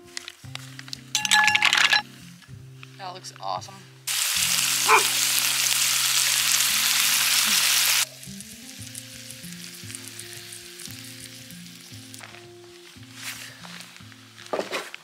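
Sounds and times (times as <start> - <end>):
soft background music: 0.0 - 15.0
food sizzling in skillet: 4.1 - 13.2.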